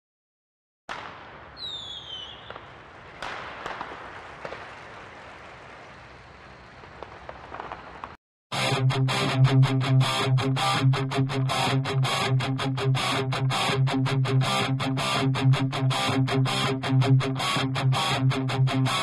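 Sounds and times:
short falling whistle: 1.6 - 2.6.

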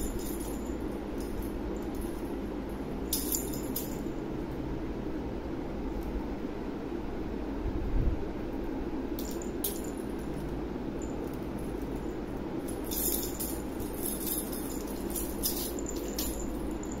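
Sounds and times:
small bells jingling: 0.0 - 4.2, 9.2 - 17.0
steady low hum: 0.0 - 17.0.

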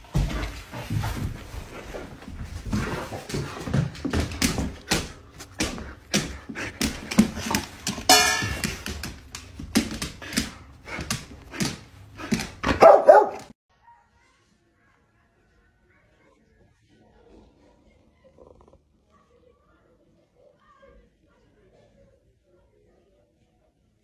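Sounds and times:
dog barking and yipping: 12.6 - 13.5.

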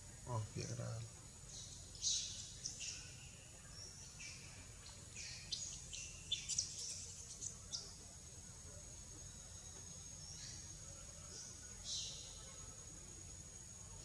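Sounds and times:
faint background hiss: 0.0 - 14.0
birds chirping: 0.3 - 8.0.

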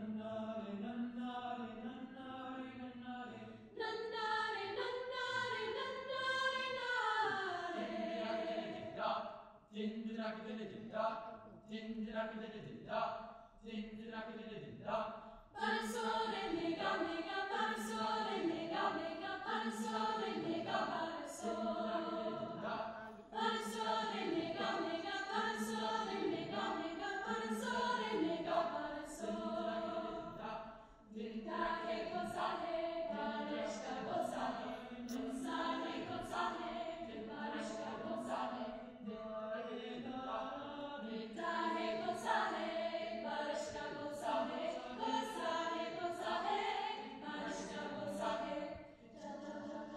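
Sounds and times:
choir singing a cappella: 0.0 - 49.9.

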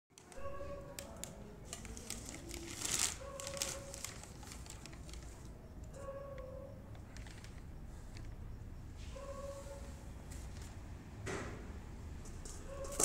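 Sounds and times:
foil wrapper crinkling: 1.0 - 5.5.

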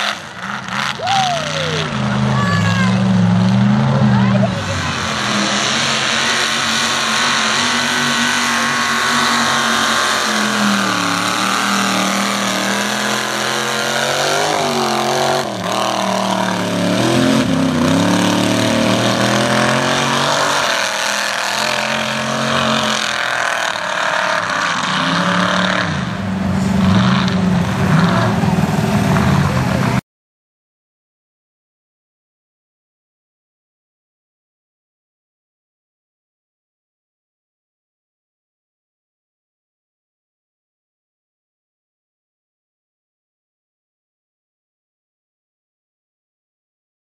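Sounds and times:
truck engine revving: 0.0 - 30.0.

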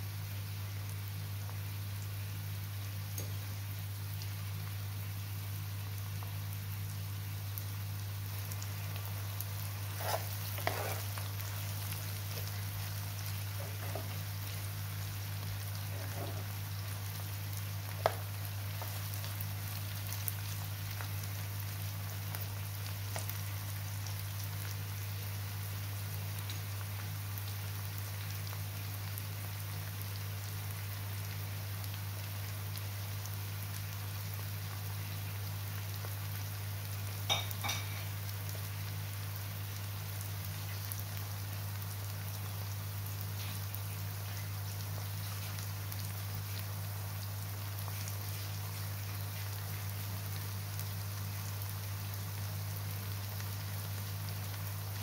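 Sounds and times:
onions sizzling in oil: 0.0 - 55.0
utensil scraping pan: 9.9 - 11.1.

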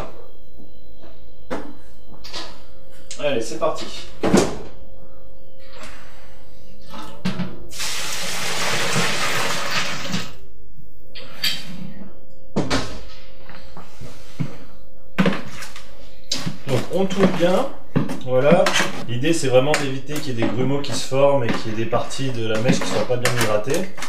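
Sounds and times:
water pouring: 7.7 - 10.2.

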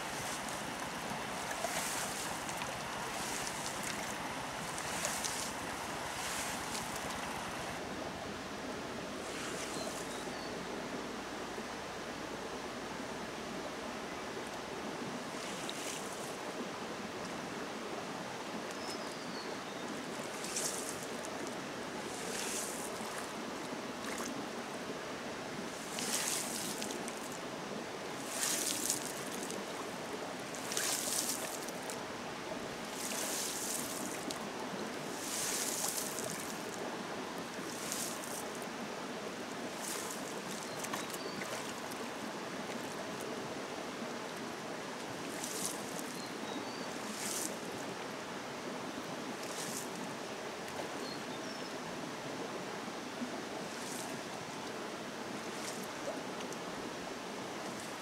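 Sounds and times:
stream rushing: 0.0 - 58.0
faint bird chirps: 9.6 - 10.7.

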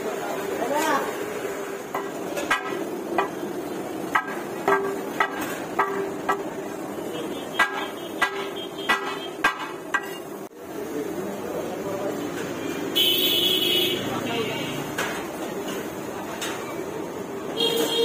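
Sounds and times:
cleaver chopping on metal griddle: 1.9 - 10.4.

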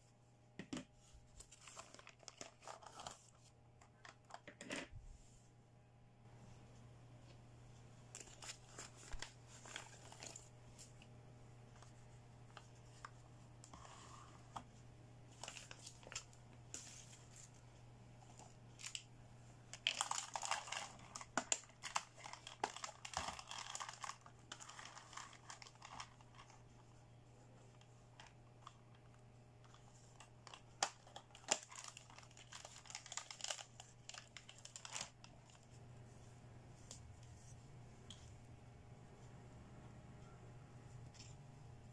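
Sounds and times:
plastic bag crinkling: 1.4 - 4.4, 19.7 - 26.9, 29.6 - 35.7.

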